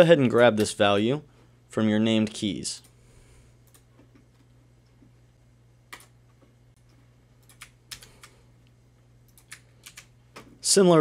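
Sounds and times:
low steady hum: 0.0s - 11.0s
computer mouse clicks: 7.4s - 8.4s, 9.3s - 10.5s.

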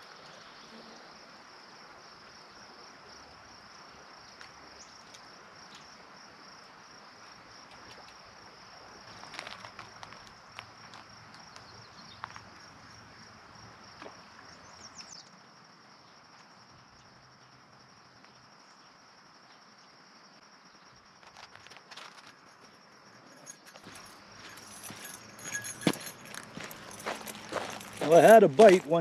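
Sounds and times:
high insect trill: 0.2s - 29.0s
light footsteps: 21.2s - 29.0s.

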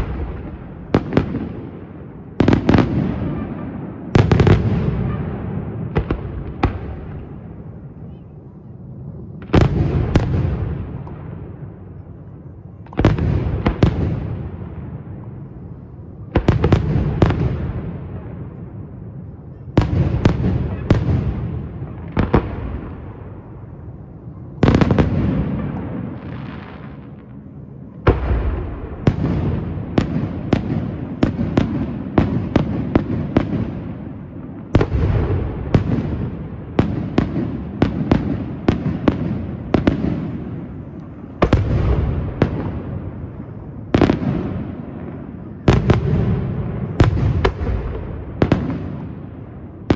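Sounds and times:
firework shells booming: 28.0s - 49.9s.

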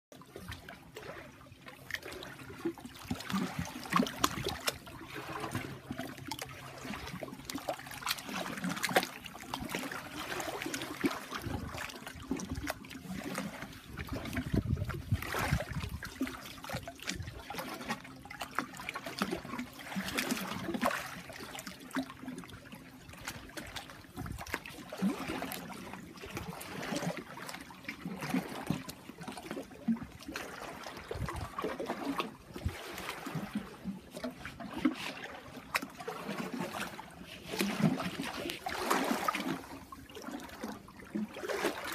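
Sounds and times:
feet splashing through stream: 2.1s - 16.4s, 30.4s - 41.9s.

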